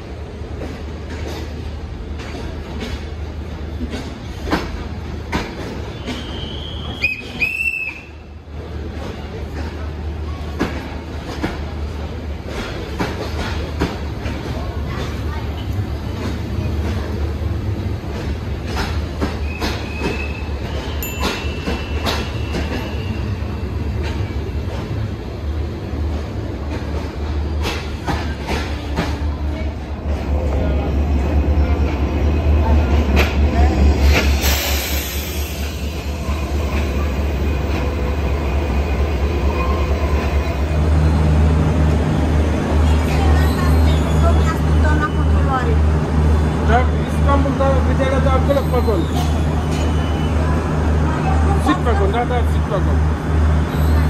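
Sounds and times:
train coaches rumbling: 0:00.0 - 0:54.0.

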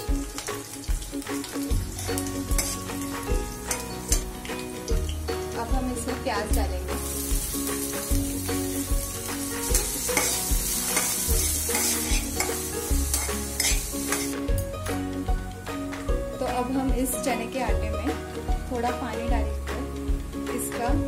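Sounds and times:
vegetables sizzling in oil: 0:00.0 - 0:15.0
faint background music: 0:00.0 - 0:21.0
metal spatula scraping: 0:01.8 - 0:04.6, 0:09.6 - 0:14.4.

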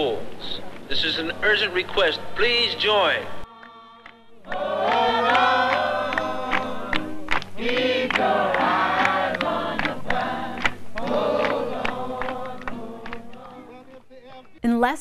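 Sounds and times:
group singing in chorus: 0:03.3 - 0:14.6
hand claps: 0:03.5 - 0:14.6.

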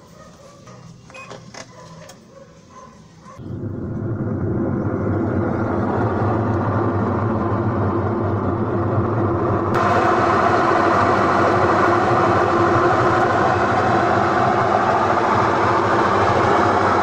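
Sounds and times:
washing machine spinning: 0:03.6 - 0:17.0.

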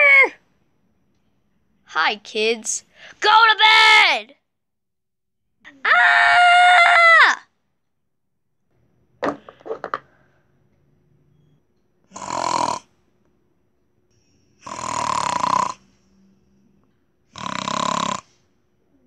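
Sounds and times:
person imitating snoring: 0:12.1 - 0:12.9, 0:14.6 - 0:16.0, 0:17.3 - 0:18.4.

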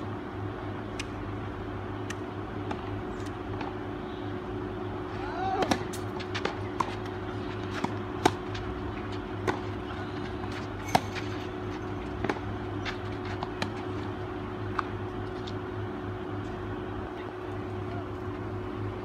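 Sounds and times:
steady low hum: 0:00.0 - 0:19.0
tennis balls struck by racquets: 0:05.5 - 0:15.0.

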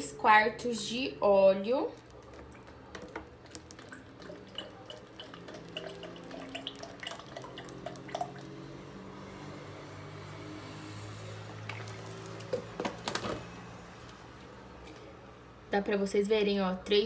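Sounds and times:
oil pouring into plastic cup: 0:02.0 - 0:09.0, 0:11.6 - 0:12.7.

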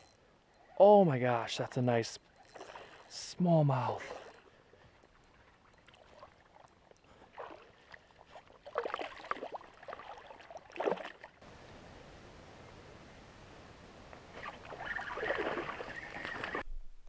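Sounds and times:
faint water sound: 0:00.0 - 0:16.7
fish splashing at water surface: 0:14.4 - 0:16.6.

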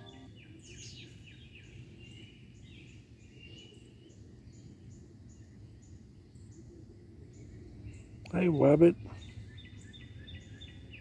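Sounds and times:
bird chirps: 0:00.0 - 0:03.7.

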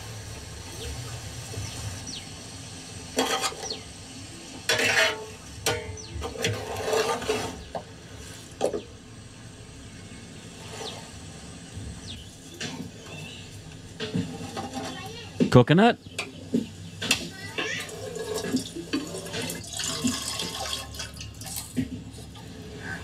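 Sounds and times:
metal ladle scraping metal pot: 0:03.2 - 0:03.8, 0:04.7 - 0:08.5, 0:17.6 - 0:21.1.

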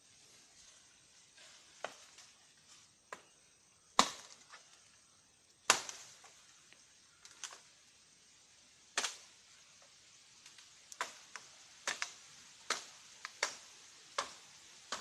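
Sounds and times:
blade chopping wood: 0:04.0 - 0:04.4.

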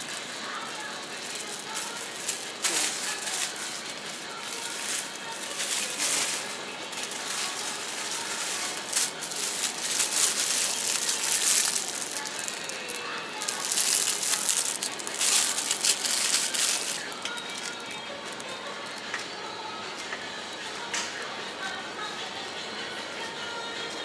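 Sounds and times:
plastic packaging crinkling: 0:00.0 - 0:19.1.

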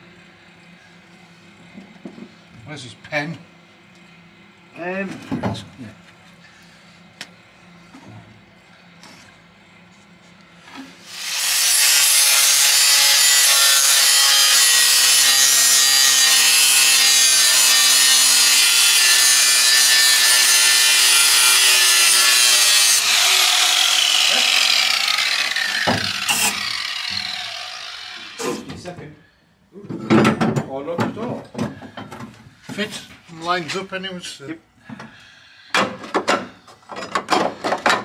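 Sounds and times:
angle grinder grinding metal: 0:11.0 - 0:28.7
grinder spinning down: 0:11.1 - 0:28.4.

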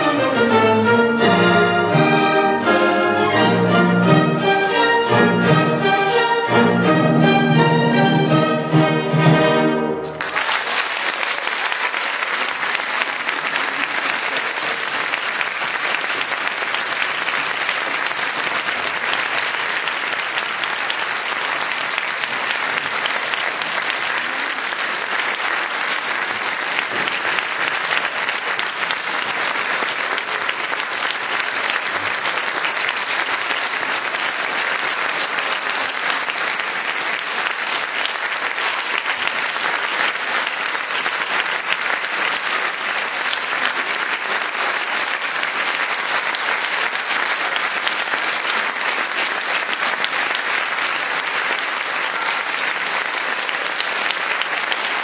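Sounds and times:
orchestra and pianos chord: 0:00.0 - 0:10.2
audience applause: 0:09.7 - 0:55.0.

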